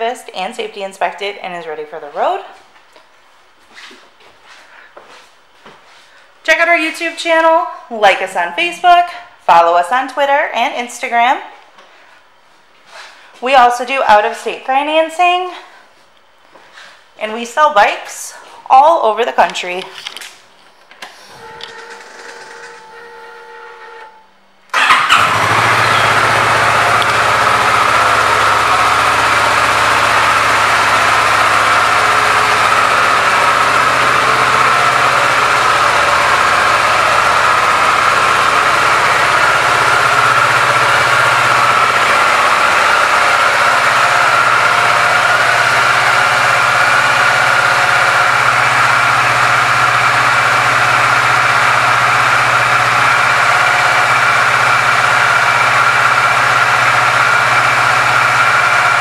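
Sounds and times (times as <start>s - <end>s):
motorcycle engine starting and idling: 21.4s - 59.0s.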